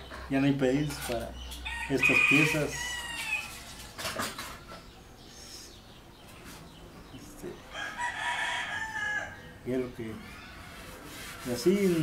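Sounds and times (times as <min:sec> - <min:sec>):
rooster crowing: 0:01.6 - 0:03.7, 0:07.7 - 0:09.5.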